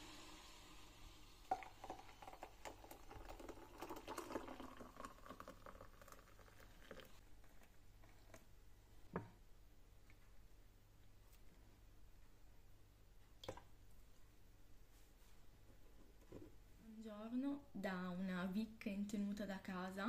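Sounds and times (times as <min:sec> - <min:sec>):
water pouring into glass mug: 0:00.0 - 0:07.2.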